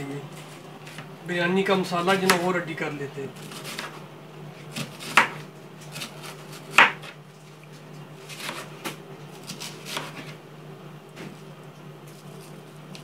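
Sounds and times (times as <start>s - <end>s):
knife chopping on cutting board: 3.4s - 4.0s, 4.7s - 7.2s, 8.3s - 10.4s.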